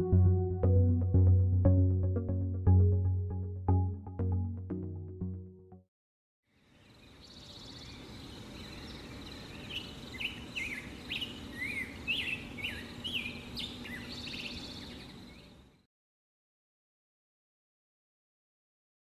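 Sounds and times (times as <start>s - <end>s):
outdoor background hiss: 6.5s - 15.8s
songbirds chirping: 6.6s - 15.9s.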